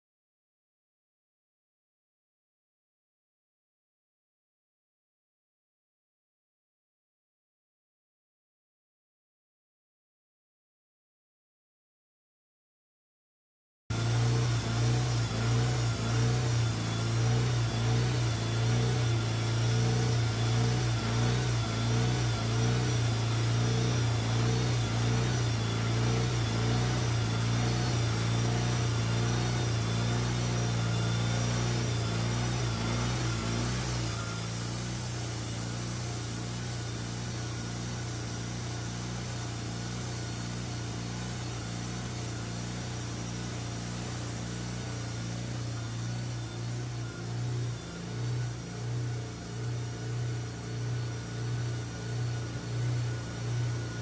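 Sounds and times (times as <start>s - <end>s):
sawmill engine throbbing drone: 13.9s - 54.0s.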